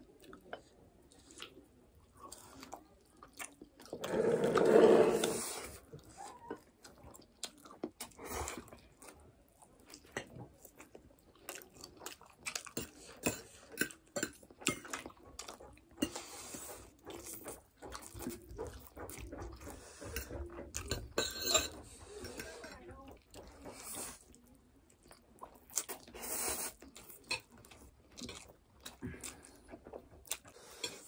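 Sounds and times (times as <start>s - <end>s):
chewing: 0.0s - 31.0s
noodles being slurped: 3.9s - 5.9s
forks scraping ceramic plates: 4.0s - 5.6s, 20.0s - 22.8s.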